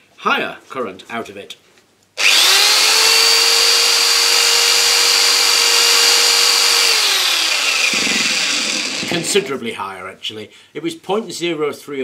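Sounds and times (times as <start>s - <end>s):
electric drill whining: 2.2s - 9.5s.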